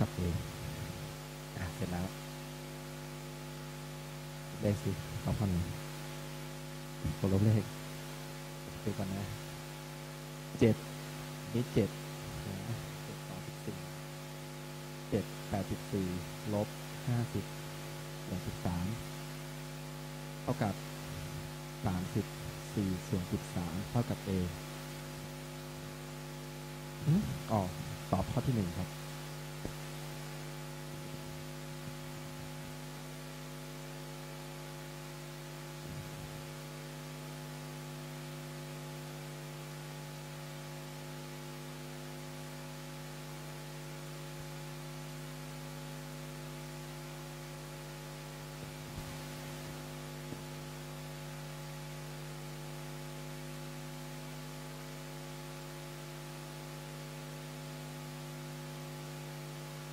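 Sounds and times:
faint hiss: 0.0 - 26.2, 27.0 - 36.6
electrical mains hum: 0.0 - 59.9.

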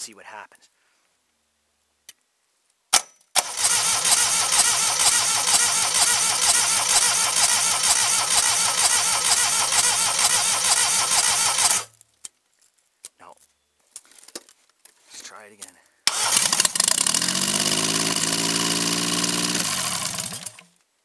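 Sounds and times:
starter click: 3.0 - 11.9
car engine running: 3.5 - 11.9.

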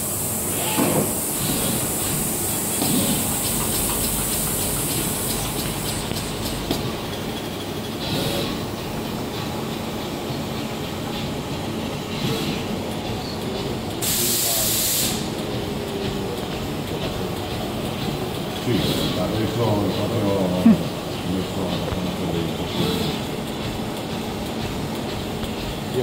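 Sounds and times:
air hissing: 0.0 - 6.6, 13.9 - 16.4, 18.5 - 20.0
machine whirring: 0.0 - 26.0.

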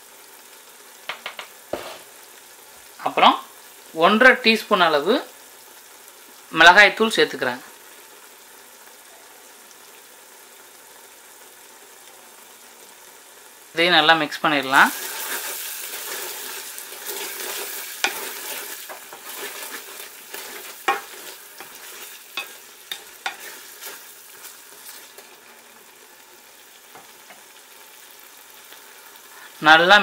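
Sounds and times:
frying sizzle: 0.0 - 30.0
spatula scraping metal pot: 15.0 - 25.3.

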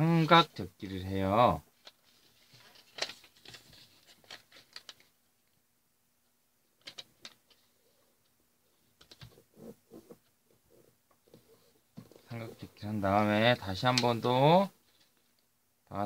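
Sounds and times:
paper rustling and crackling: 1.7 - 5.2, 6.8 - 7.7.

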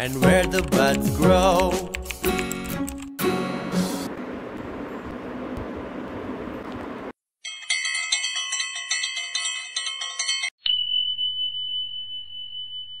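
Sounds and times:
background music: 0.0 - 4.1
bell-like chimes: 7.4 - 13.0
high ringing tone: 7.4 - 13.0.

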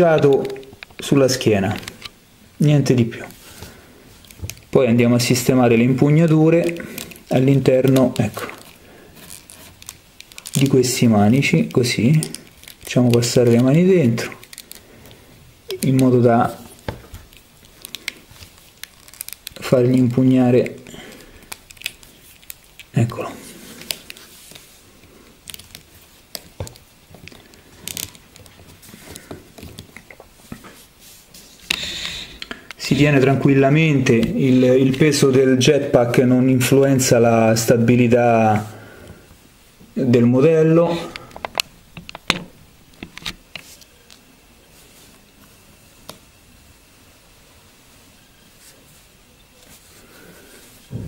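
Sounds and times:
plastic figure clicks and rustles: 0.0 - 2.2, 6.2 - 30.8.

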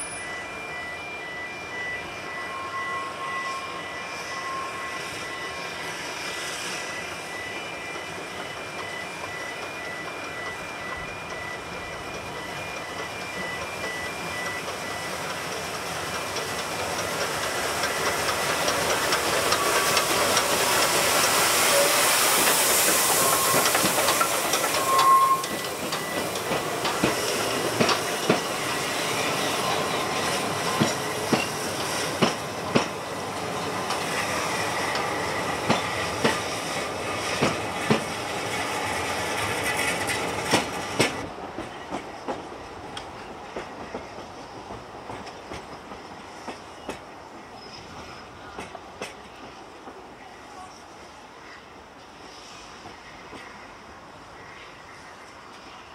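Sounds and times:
steam train hissing: 0.0 - 55.9
train wheels clickety-clack: 6.6 - 50.2, 52.3 - 53.7.

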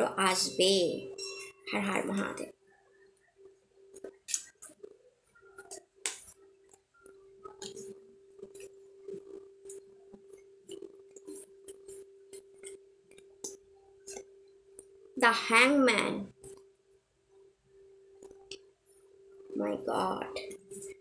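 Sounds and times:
faint steady hum: 0.0 - 21.0
cards shuffling and snapping: 4.0 - 4.8.

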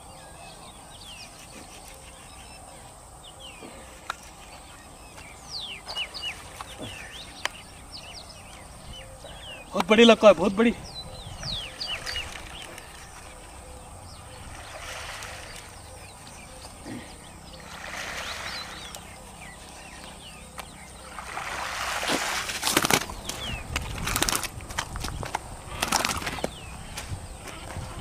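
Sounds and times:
small birds chirping: 0.0 - 21.7, 22.7 - 28.0
fish slapping on the bank: 14.5 - 15.8, 17.6 - 19.1, 20.6 - 26.6
fish splashing at the surface: 14.5 - 15.8, 17.6 - 19.0, 21.1 - 23.1.

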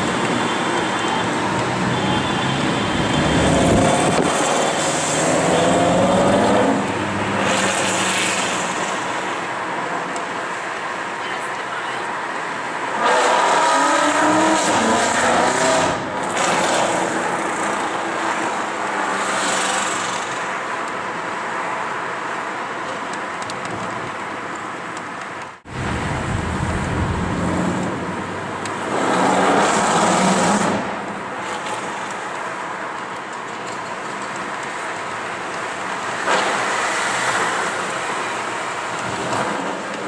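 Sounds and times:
traffic noise: 0.0 - 40.0.

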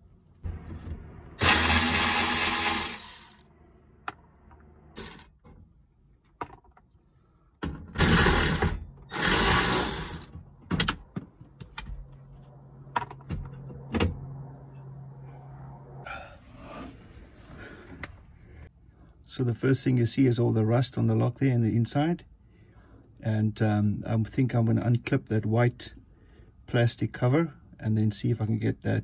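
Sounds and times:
electric ratchet running: 1.4 - 3.4, 5.0 - 5.3, 8.0 - 10.3.

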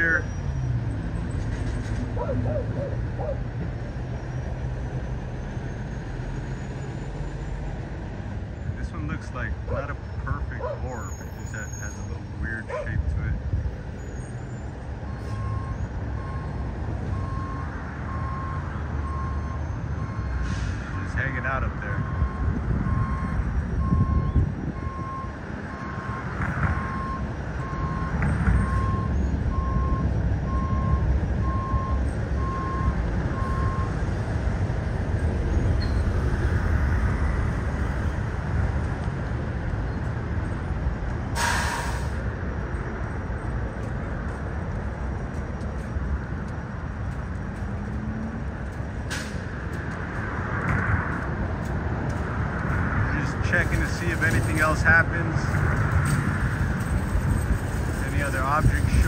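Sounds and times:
street traffic rumble: 0.0 - 59.0
reversing beeper beeps: 15.1 - 20.4, 21.9 - 34.0.

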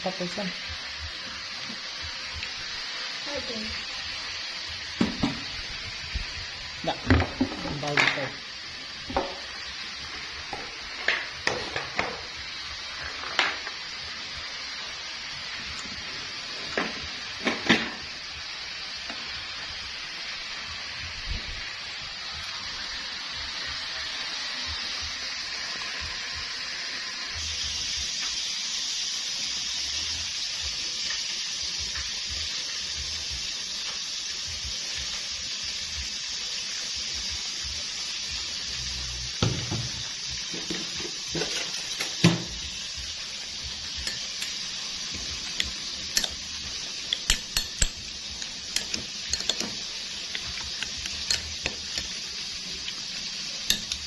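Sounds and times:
steady hiss: 0.0 - 54.0
spoon clinking in ceramic bowl: 48.8 - 49.7, 51.2 - 52.1.

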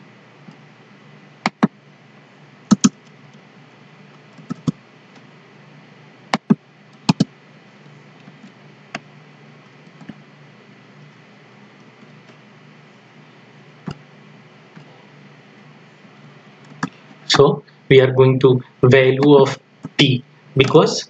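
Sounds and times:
low steady hum: 0.0 - 21.0
mouse and keyboard clicks: 2.7 - 3.0, 4.4 - 4.8, 6.4 - 7.3.

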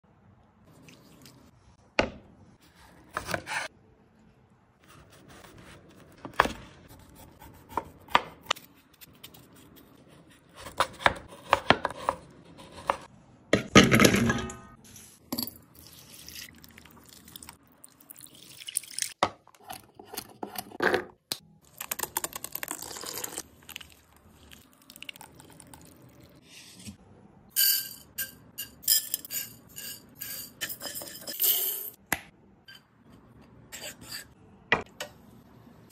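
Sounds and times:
water poured into bowl: 15.9 - 19.1.

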